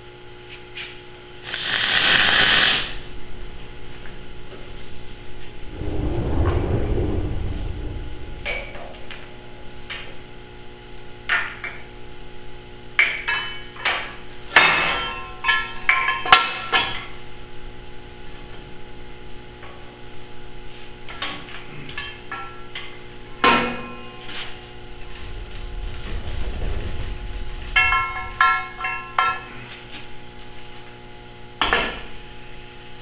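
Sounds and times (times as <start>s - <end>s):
steady hum: 0.0s - 16.1s, 17.2s - 33.0s
steel beam clanking: 23.6s - 30.2s.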